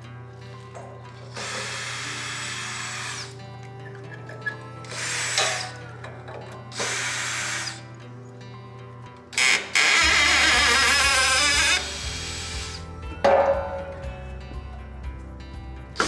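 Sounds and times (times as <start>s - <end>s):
background music: 0.0s - 16.0s
cordless drill running: 1.2s - 3.4s, 6.7s - 7.8s, 9.4s - 12.9s.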